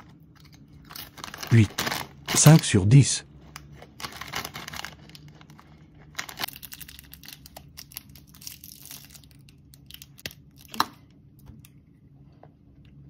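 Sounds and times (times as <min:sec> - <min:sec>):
plastic wrapper crinkling and tearing: 0:00.0 - 0:02.8, 0:03.4 - 0:10.8.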